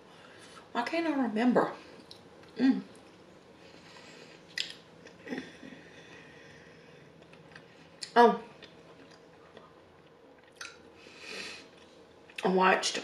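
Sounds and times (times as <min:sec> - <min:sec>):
person chewing food: 0:02.0 - 0:05.4, 0:07.1 - 0:10.8.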